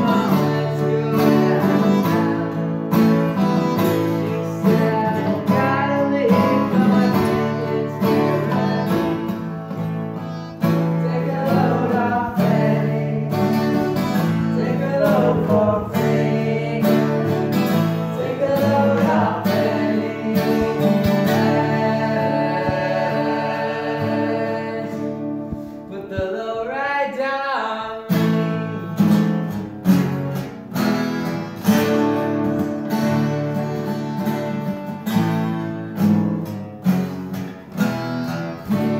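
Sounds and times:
man singing: 0.0 - 28.9
acoustic guitars strumming: 0.0 - 38.9.

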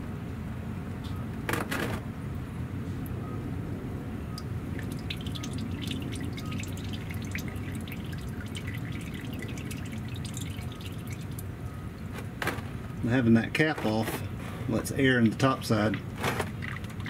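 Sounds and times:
oil pouring into drain pan: 4.4 - 12.1, 15.7 - 17.0.

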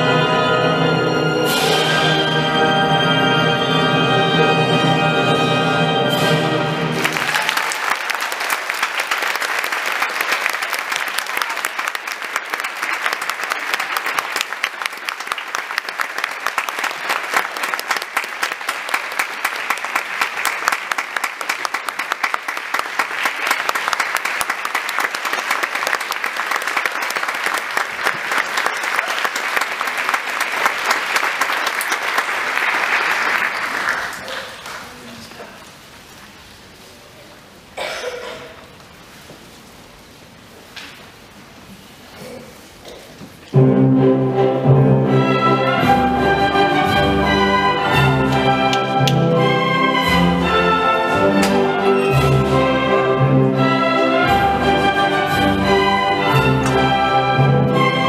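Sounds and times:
orchestral music: 0.0 - 7.5, 43.5 - 58.0
audience applause: 6.8 - 35.6.

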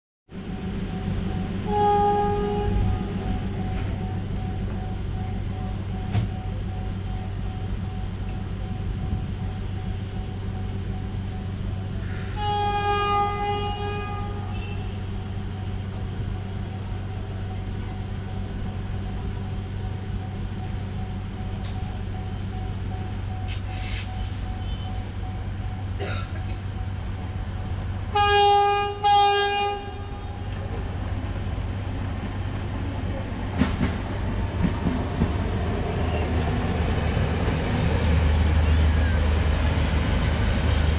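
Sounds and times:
idling diesel train hum: 0.3 - 40.9
train horn blasts: 1.4 - 4.5, 12.0 - 16.6, 24.2 - 25.1, 28.0 - 30.7.

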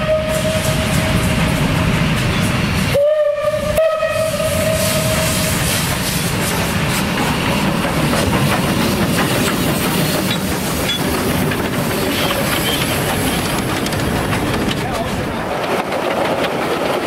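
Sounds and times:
steam whistle blast: 0.0 - 1.3, 2.9 - 5.7
steam locomotive hissing: 0.0 - 17.0
clatter of running gear and wheels: 8.4 - 17.0.

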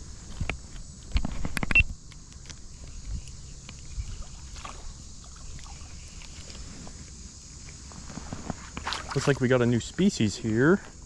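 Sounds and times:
water splashing: 4.2 - 6.3, 8.8 - 9.5.

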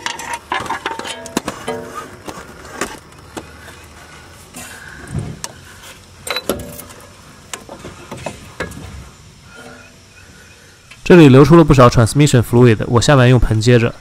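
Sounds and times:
metal clinks: 6.2 - 7.0.

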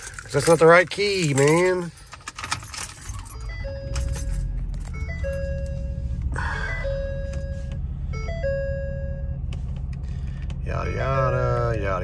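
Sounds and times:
dashboard warning chime: 2.6 - 9.5, 10.6 - 12.0
diesel engine idling: 3.0 - 12.0.

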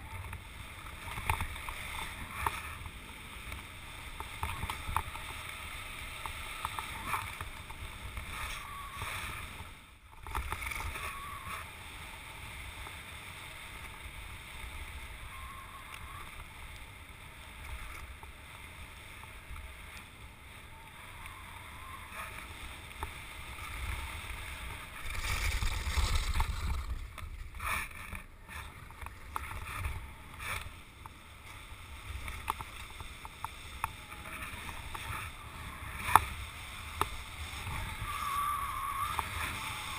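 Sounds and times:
skis hissing over snow: 20.5 - 28.6.

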